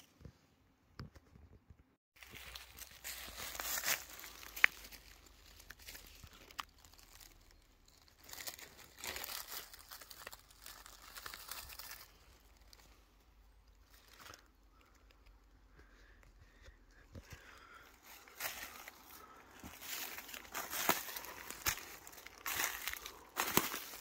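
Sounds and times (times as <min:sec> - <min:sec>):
dry leaves crackling: 0:02.2 - 0:15.2, 0:17.5 - 0:24.0.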